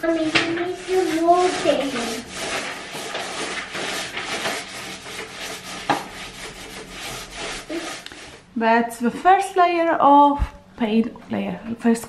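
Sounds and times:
paintbrush strokes on wall: 0.0s - 8.5s.

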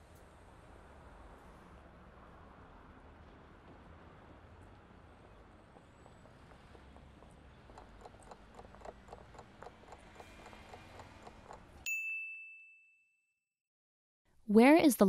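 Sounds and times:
quick clock ticks: 6.0s - 11.9s
bright bell ding: 11.8s - 13.3s.

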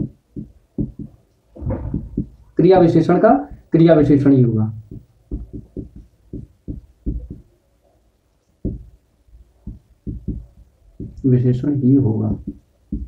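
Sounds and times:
marker pen tapping on whiteboard: 0.0s - 4.2s, 4.9s - 7.5s, 8.6s - 9.0s, 9.6s - 11.3s, 12.3s - 13.0s.

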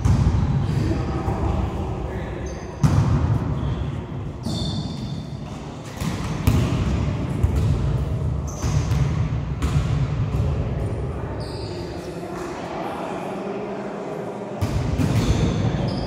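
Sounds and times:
shoes squeaking on court: 4.4s - 6.1s, 8.4s - 8.9s
volleyball being struck: 5.9s - 7.9s.

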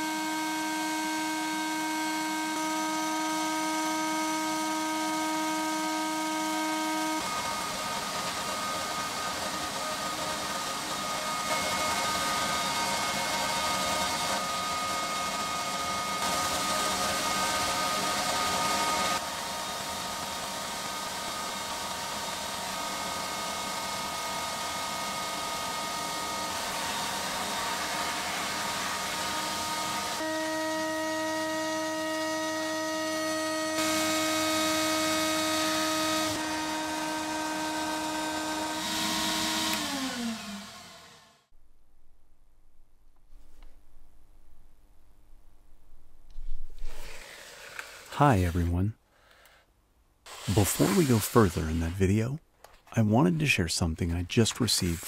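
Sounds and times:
motor hum: 0.1s - 41.6s
sandblast gun hissing: 50.3s - 52.1s.

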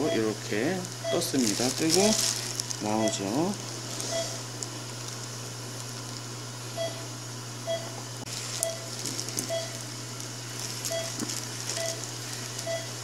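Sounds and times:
patient monitor beeping: 0.0s - 4.5s, 6.8s - 7.9s, 8.6s - 9.8s, 10.9s - 13.0s
steady equipment hum: 0.0s - 13.0s.

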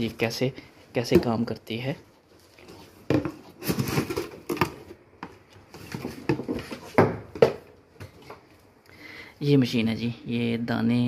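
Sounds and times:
cardboard rustling and scraping: 2.3s - 8.3s.

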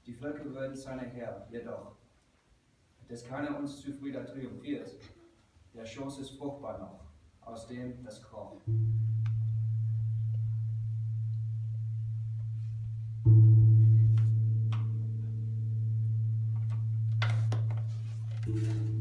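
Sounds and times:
low steady musical drone: 8.6s - 19.0s.

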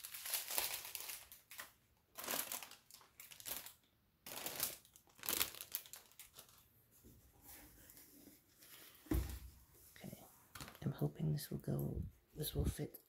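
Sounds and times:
plastic packaging crinkling: 0.0s - 6.7s.

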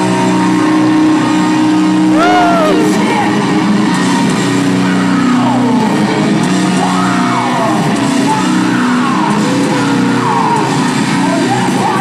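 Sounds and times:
live hard rock band: 0.0s - 12.0s
fans yelling and whooping: 2.0s - 3.7s.

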